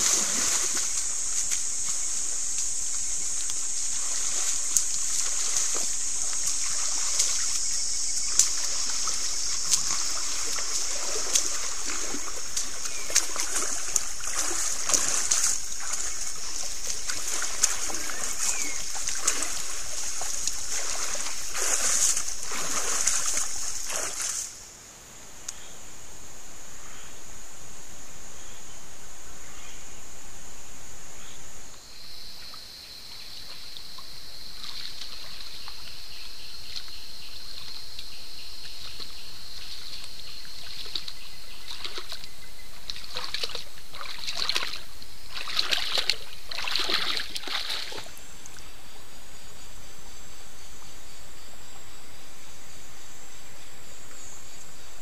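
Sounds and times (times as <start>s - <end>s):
high-pitched insect drone: 0.0s - 24.6s
water splashing under elephants: 0.0s - 24.7s, 33.4s - 48.7s.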